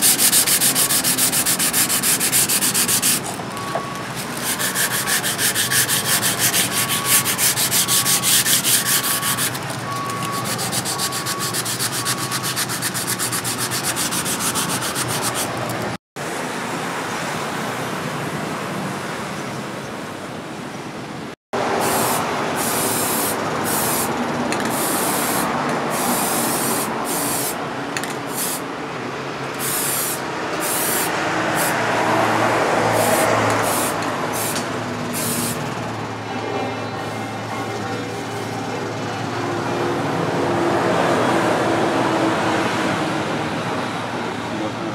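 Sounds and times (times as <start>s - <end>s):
aerosol spray can hissing: 0.0s - 3.3s, 21.8s - 24.1s, 24.7s - 27.6s, 28.3s - 28.6s, 29.6s - 31.7s, 33.0s - 34.6s, 35.2s - 35.6s
cloth wiping a blade: 0.0s - 3.3s, 4.1s - 15.5s
sandpaper rubbing steel blade: 0.0s - 3.4s, 4.0s - 15.7s, 32.9s - 35.7s.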